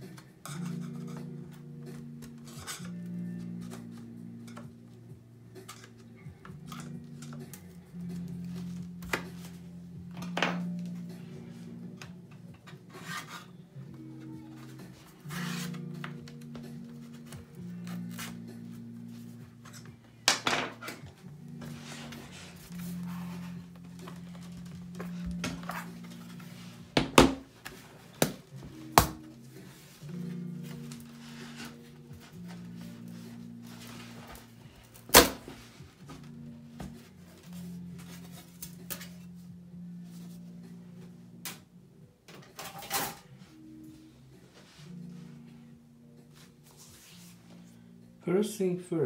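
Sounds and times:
soft background music: 0:00.0 - 0:49.0.

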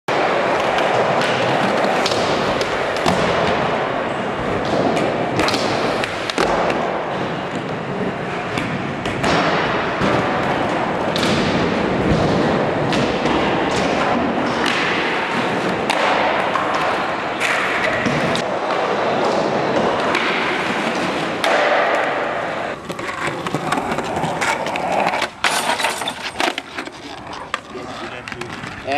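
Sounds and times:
skateboard clacks and thuds: 0:00.1 - 0:28.9
skateboards rolling: 0:00.1 - 0:28.9.

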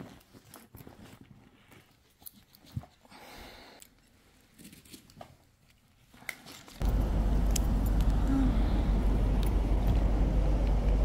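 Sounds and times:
bag fabric rustling: 0:00.0 - 0:02.4
loud low rumble: 0:06.8 - 0:11.0.

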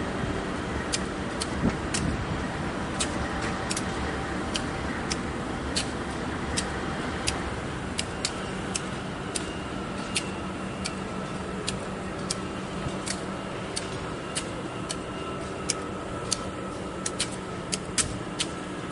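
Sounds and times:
diesel locomotive idling: 0:00.0 - 0:18.9.

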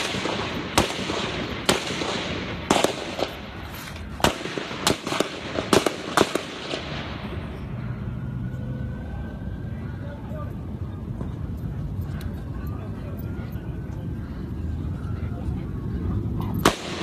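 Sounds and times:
gunshots: 0:00.0 - 0:03.5, 0:04.1 - 0:07.1, 0:16.6 - 0:17.0.

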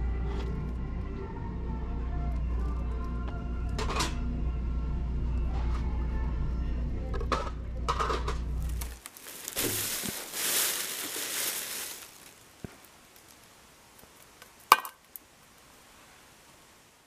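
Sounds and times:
low store hum: 0:00.0 - 0:14.6
plastic bag rustling: 0:08.6 - 0:13.6.

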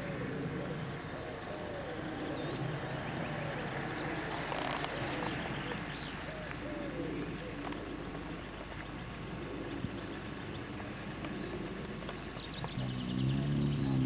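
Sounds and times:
birds chirping: 0:00.0 - 0:14.0
car engine rumbling: 0:12.6 - 0:14.0.

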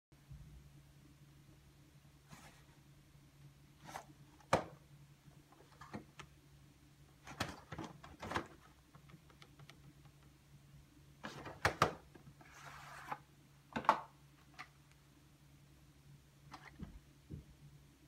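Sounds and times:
cassette case clicks and knocks: 0:04.4 - 0:04.8, 0:11.3 - 0:12.1.

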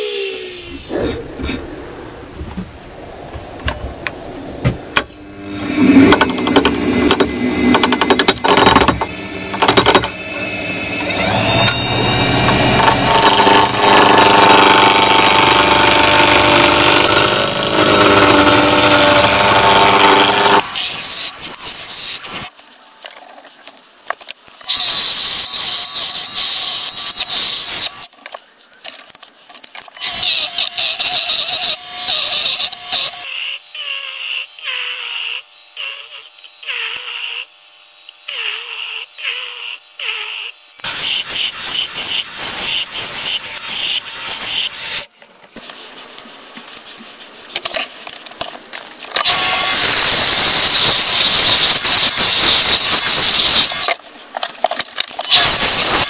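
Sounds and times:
gouge cutting spinning wood: 0:05.5 - 0:22.4, 0:49.2 - 0:54.0, 0:55.3 - 0:56.0
high wavering squealing: 0:10.2 - 0:13.1.

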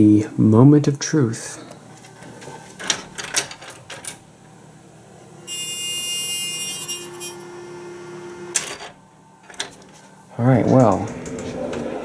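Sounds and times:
elevator alarm buzzer: 0:05.4 - 0:08.6.

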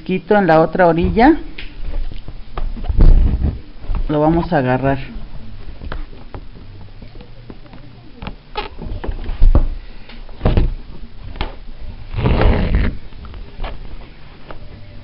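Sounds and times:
heavy thumps: 0:01.0 - 0:04.5, 0:05.3 - 0:14.6
cloth rustling: 0:11.0 - 0:14.7.

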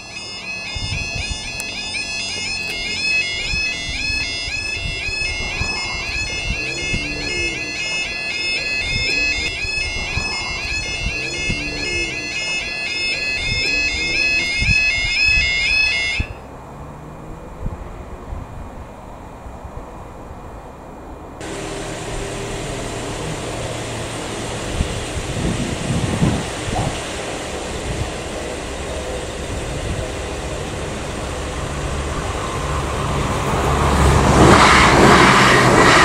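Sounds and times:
warbling electronic warning alarm: 0:00.0 - 0:16.5.

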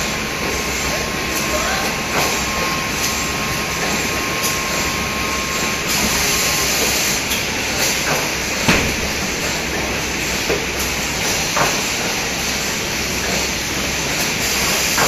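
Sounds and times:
packing machine clatter and hum: 0:00.0 - 0:15.0
sharp knock: 0:08.7 - 0:09.8
hiss: 0:14.2 - 0:15.0.

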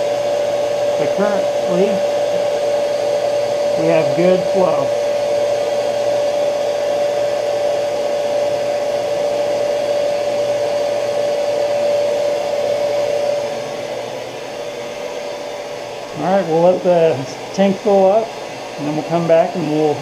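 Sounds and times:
pump motor whining and humming: 0:00.0 - 0:20.0.

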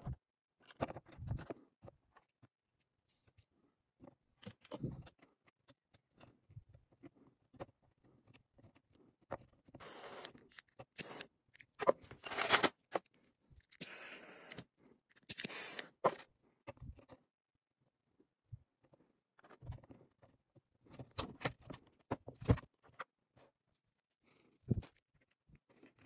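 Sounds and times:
clicks and scrapes of wires: 0:04.4 - 0:17.2.

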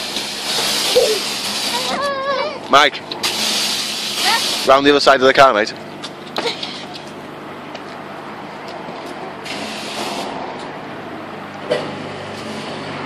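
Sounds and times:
spray hiss: 0:00.0 - 0:01.9, 0:03.2 - 0:04.7, 0:09.5 - 0:10.3
pressure washer machine hum: 0:00.0 - 0:13.0.

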